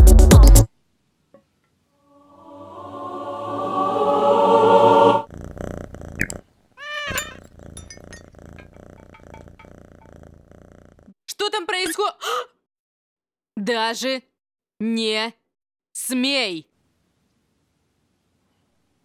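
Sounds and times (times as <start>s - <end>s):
chord-like sound: 2.1s - 5.2s
cat meowing: 6.1s - 7.5s.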